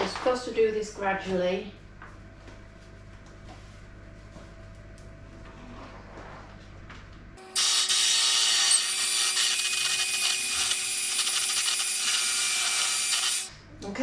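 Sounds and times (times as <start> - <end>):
electric hand mixer whirring: 7.4 - 13.5.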